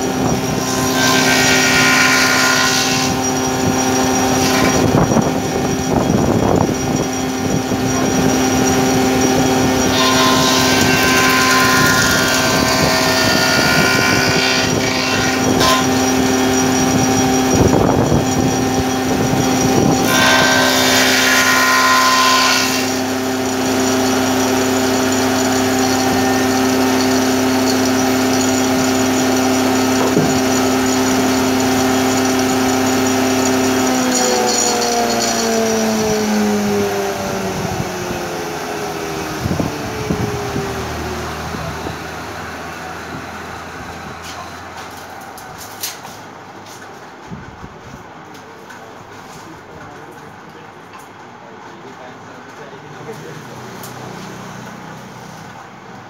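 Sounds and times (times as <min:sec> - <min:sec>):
planer cutting board: 0:00.0 - 0:42.0
wood planer humming: 0:00.0 - 0:45.5.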